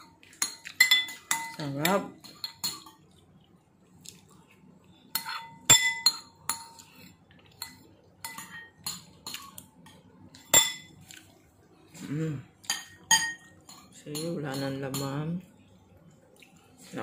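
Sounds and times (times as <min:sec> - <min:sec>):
metal spoon clinking on glass: 0:00.4 - 0:03.0, 0:12.7 - 0:15.2.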